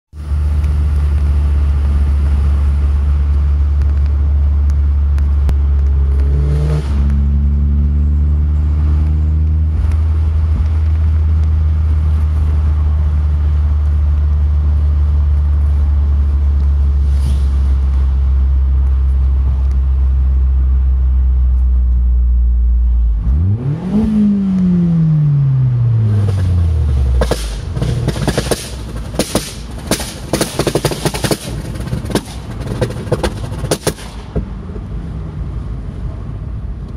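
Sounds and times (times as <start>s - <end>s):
car engine and road noise: 0.1s - 36.9s
engine cracks and pops: 0.2s - 7.3s, 8.9s - 12.7s, 13.6s - 20.0s, 26.0s - 34.6s.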